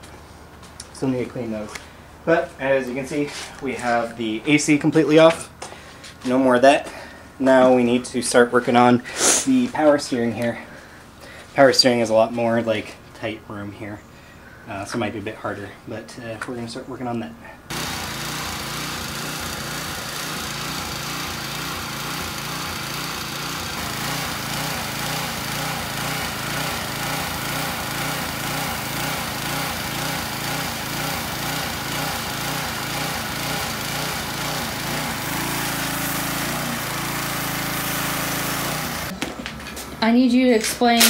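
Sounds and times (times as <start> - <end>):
pressure washer spraying: 17.7 - 39.2.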